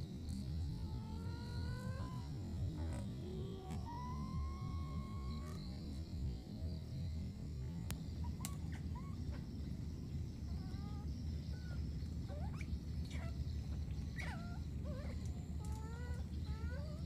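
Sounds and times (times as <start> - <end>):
small animal squeaking: 0.6 - 5.7, 10.5 - 13.4, 14.1 - 17.0.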